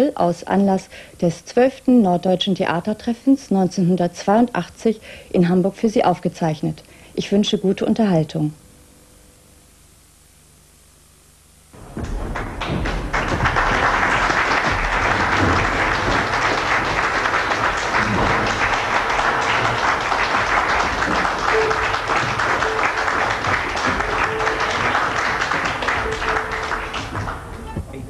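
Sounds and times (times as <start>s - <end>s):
audience applauding: 11.8s - 27.8s
held tone: 21.1s - 28.0s.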